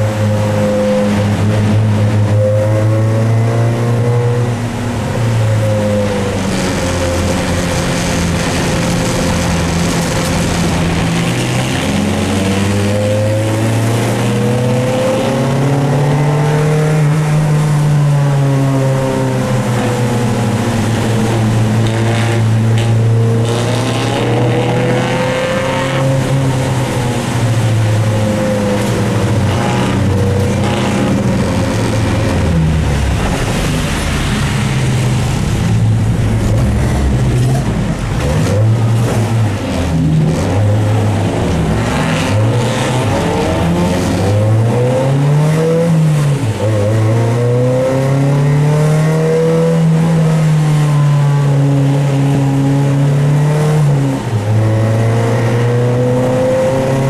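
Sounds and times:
car engine revving: 0:00.0 - 0:57.0
rain and tyre spray hiss: 0:06.4 - 0:12.3.

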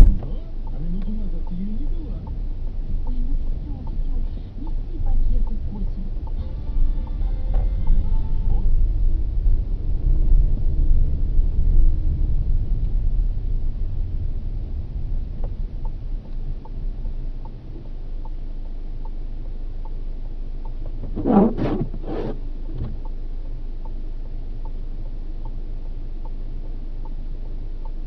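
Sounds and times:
car cabin rumble: 0:00.0 - 0:28.0
faint regular ticking: 0:00.1 - 0:06.4, 0:15.3 - 0:21.0, 0:22.6 - 0:28.0
windscreen wiper swishing: 0:20.9 - 0:23.0.

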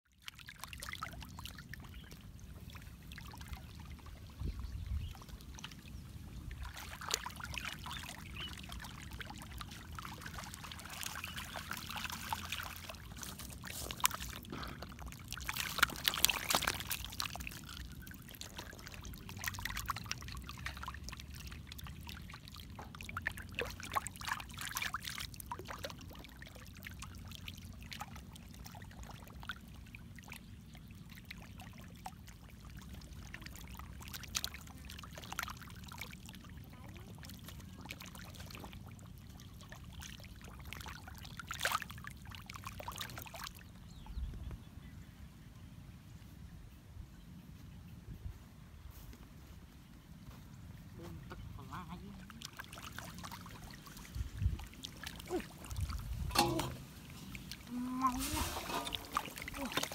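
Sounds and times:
fish splashing in water: 0:05.0 - 0:43.7, 0:51.7 - 0:59.9.

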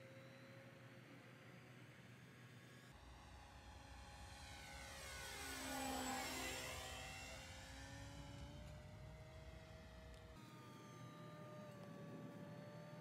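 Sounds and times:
model plane electric motor and propeller: 0:03.0 - 0:13.0.

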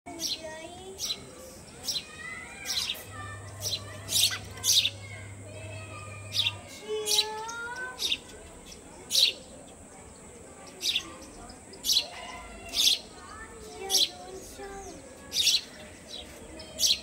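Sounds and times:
nestlings cheeping: 0:01.8 - 0:09.3.

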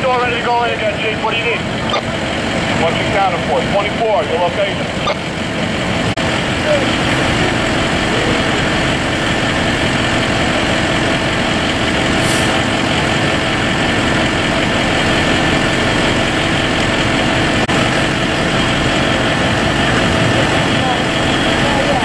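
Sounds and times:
diesel engines droning: 0:00.0 - 0:22.0.

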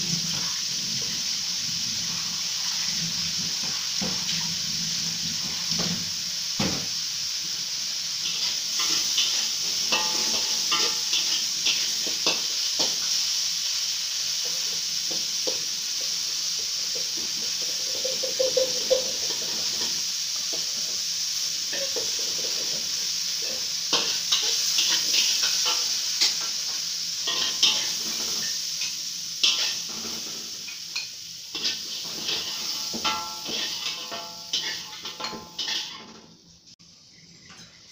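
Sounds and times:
fish sizzling in oil: 0:00.0 - 0:37.9
metal spatula scraping a wok: 0:08.2 - 0:13.1, 0:21.7 - 0:36.2.

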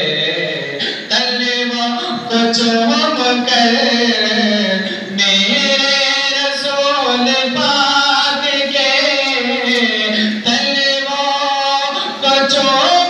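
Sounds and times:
man singing unaccompanied: 0:00.0 - 0:13.0.

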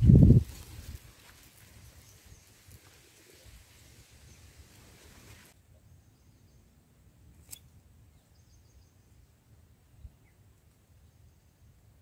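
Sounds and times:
light hiss: 0:00.5 - 0:05.6.

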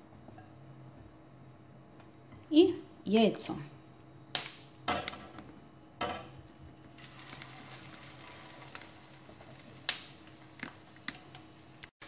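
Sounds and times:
oil sizzling in a frying pan: 0:06.7 - 0:11.9.

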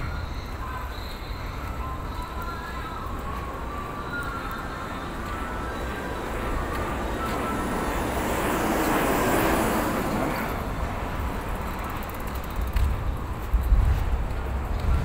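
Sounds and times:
vehicle passing by: 0:05.0 - 0:15.0
wind thumps on microphone: 0:12.2 - 0:15.0.

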